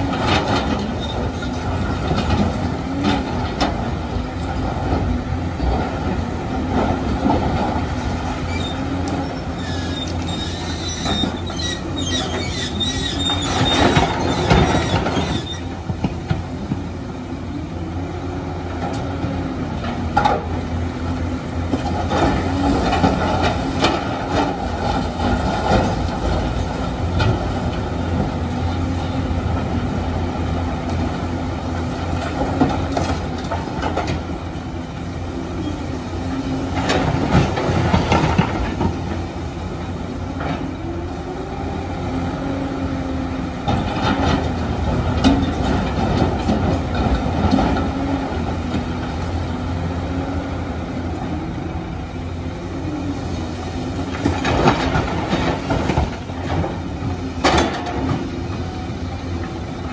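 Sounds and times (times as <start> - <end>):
excavator diesel engine running: 0.0 - 59.9
high squeal: 8.5 - 15.7.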